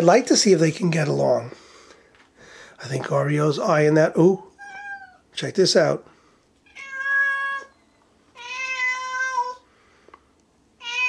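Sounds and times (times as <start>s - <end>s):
cat yowling: 4.5s - 5.2s, 6.7s - 7.8s, 8.4s - 9.6s, 10.8s - 11.0s.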